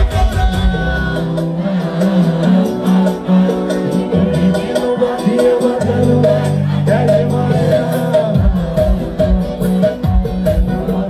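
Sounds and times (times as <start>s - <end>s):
heavy kick drum beat: 0.0s - 1.0s, 7.3s - 11.0s
live amplified band music: 0.0s - 11.0s.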